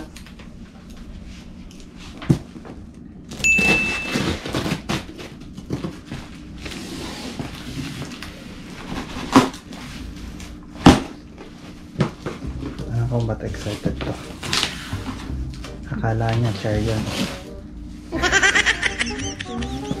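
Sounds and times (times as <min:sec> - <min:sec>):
cardboard scraping and rustling: 0:13.6 - 0:15.3, 0:16.3 - 0:17.5.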